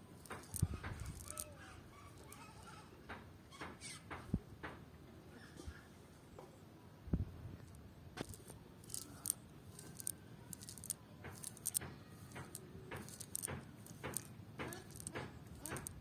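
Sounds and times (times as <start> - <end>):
small sharp clicks: 0.2 - 1.5, 8.2 - 16.0.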